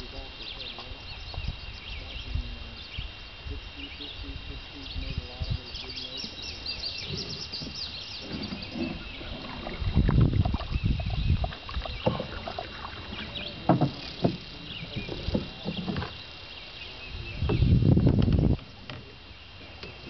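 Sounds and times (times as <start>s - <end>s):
low rumbling on microphone: 0.0s - 20.0s
paddle splashing in water: 6.1s - 20.0s.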